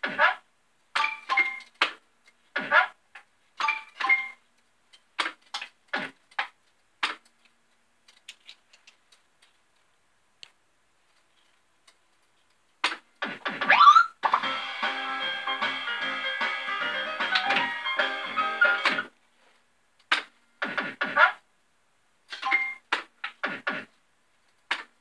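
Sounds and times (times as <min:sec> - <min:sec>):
fruit machine tune: 0:13.7 - 0:19.0.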